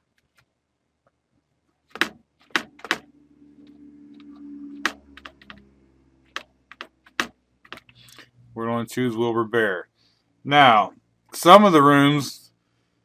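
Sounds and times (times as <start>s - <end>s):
computer keyboard keystrokes: 1.9s - 3.0s, 4.2s - 5.6s, 6.3s - 8.0s.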